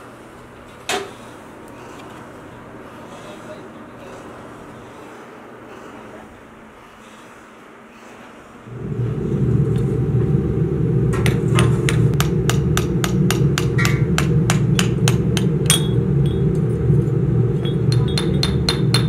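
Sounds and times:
low hum: 0:08.6 - 0:19.0
hammer striking cast iron: 0:11.2 - 0:16.4, 0:17.6 - 0:19.0.

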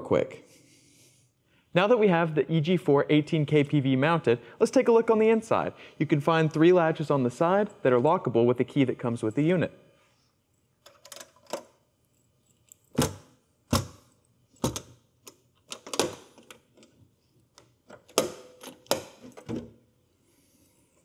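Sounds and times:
metal latches clicking open: 0:10.8 - 0:11.8, 0:14.6 - 0:19.7.

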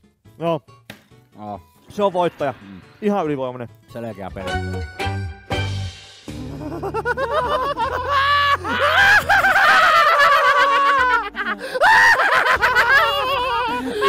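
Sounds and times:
men laughing hysterically: 0:06.4 - 0:14.0.

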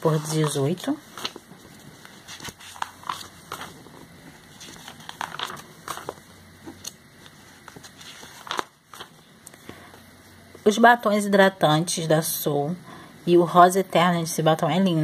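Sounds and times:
magazine pages rustling: 0:00.0 - 0:10.0.

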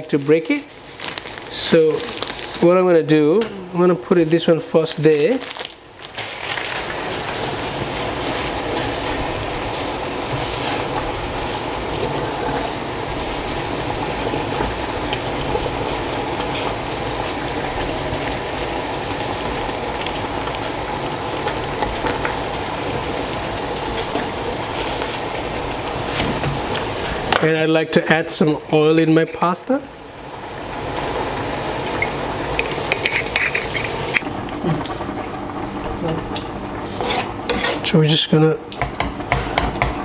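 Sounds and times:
water boiling in saucepan: 0:00.0 - 0:40.0
spaghetti being stirred: 0:04.1 - 0:20.8, 0:30.6 - 0:38.0.

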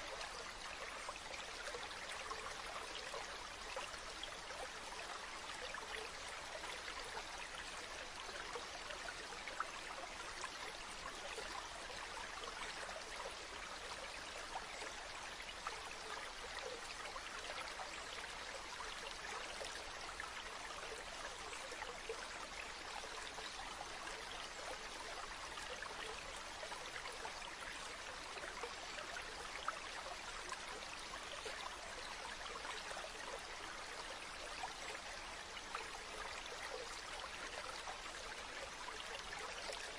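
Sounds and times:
stream babbling: 0:00.0 - 0:39.9.

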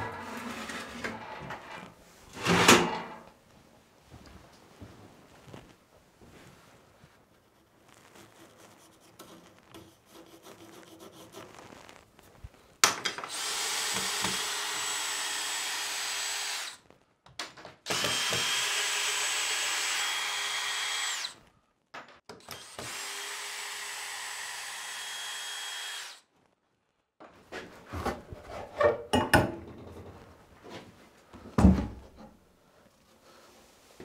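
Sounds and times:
faint handling sounds: 0:03.3 - 0:12.8
cordless drill running: 0:13.3 - 0:16.8, 0:17.9 - 0:21.4, 0:22.4 - 0:26.2.

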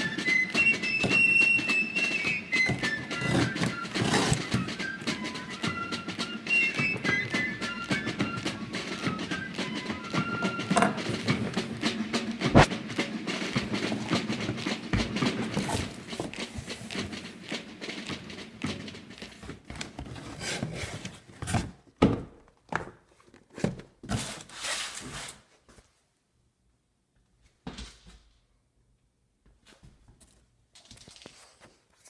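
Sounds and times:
cardboard rustling and scraping: 0:02.6 - 0:04.7, 0:14.9 - 0:17.2, 0:19.3 - 0:21.8, 0:23.4 - 0:25.5.

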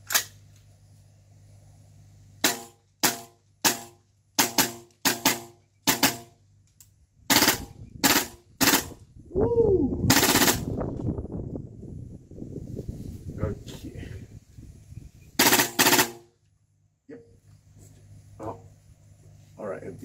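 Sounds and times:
airsoft rifle shots: 0:02.4 - 0:06.4, 0:07.3 - 0:09.0, 0:10.1 - 0:10.7, 0:15.4 - 0:16.4.

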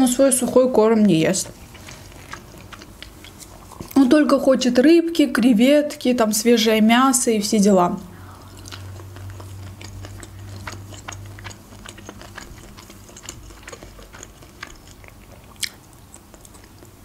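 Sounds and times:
faint low hum: 0:00.0 - 0:17.0
wet chewing smacks: 0:01.5 - 0:04.1, 0:08.4 - 0:17.0.

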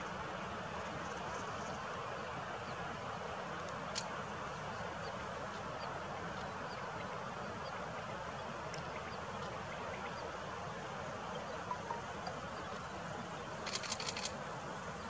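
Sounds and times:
faint high chirps: 0:11.2 - 0:12.9.

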